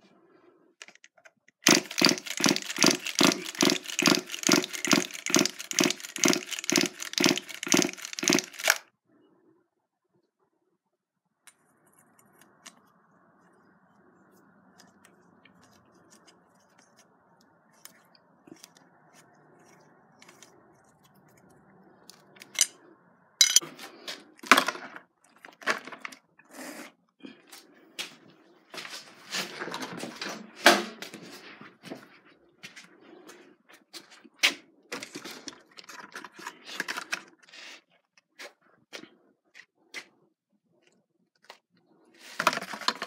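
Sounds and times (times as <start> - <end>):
metal tool clicking and clacking: 1.6 - 8.8, 22.4 - 22.7, 23.4 - 23.6.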